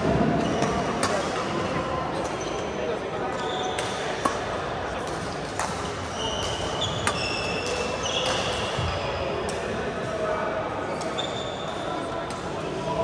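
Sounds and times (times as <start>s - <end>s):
voices chattering: 0.0s - 13.0s
racket striking shuttlecock: 0.6s - 1.4s, 3.8s - 8.5s
shoes squeaking on court floor: 2.2s - 4.2s, 5.8s - 9.4s, 10.9s - 12.0s.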